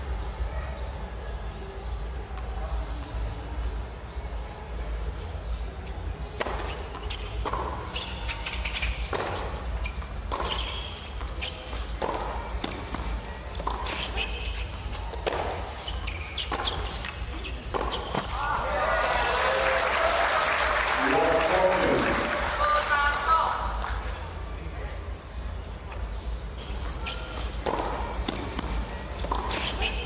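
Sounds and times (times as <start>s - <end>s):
tennis ball bounces: 6.3s - 18.4s, 27.0s - 30.0s
racket hitting tennis ball: 6.4s - 18.4s, 27.0s - 30.0s.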